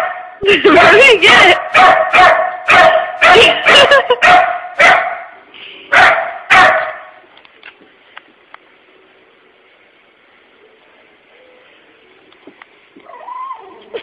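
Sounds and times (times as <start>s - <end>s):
puppy barking: 1.2s - 7.2s.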